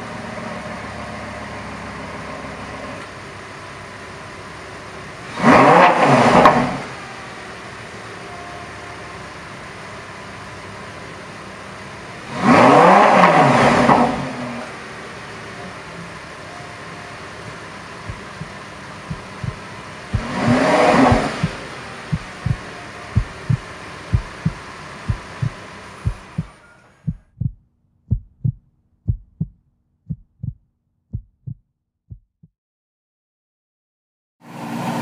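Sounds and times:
deep heartbeat thuds: 0:18.0 - 0:26.5, 0:27.1 - 0:32.5.

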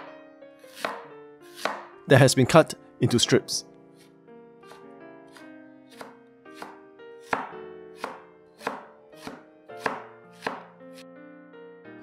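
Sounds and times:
cleaver chopping on wooden board: 0:00.7 - 0:01.9, 0:04.7 - 0:10.7.

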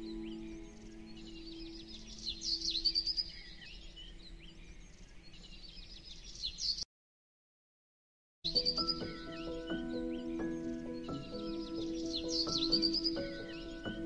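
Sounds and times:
background music low note: 0:00.0 - 0:03.0
birds chirping: 0:00.0 - 0:06.8, 0:08.5 - 0:14.0.

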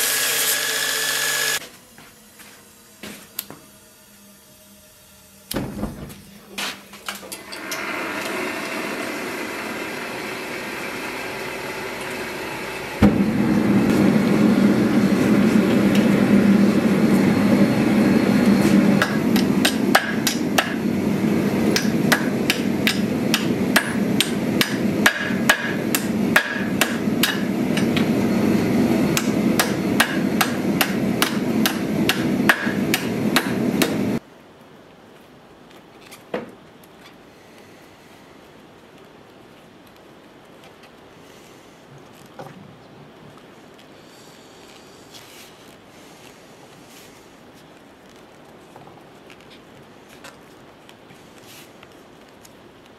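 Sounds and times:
gas forge burner roaring: 0:00.0 - 0:34.2
hammer striking hot steel on anvil: 0:18.6 - 0:21.0, 0:21.6 - 0:28.2, 0:29.1 - 0:34.2.

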